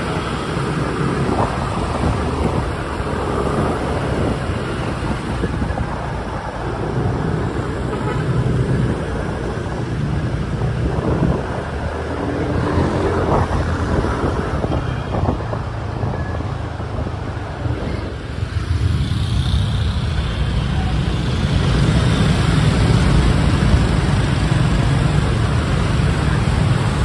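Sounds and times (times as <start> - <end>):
wind buffeting microphone: 0.0 - 7.8, 8.4 - 19.1
street traffic: 0.0 - 27.0.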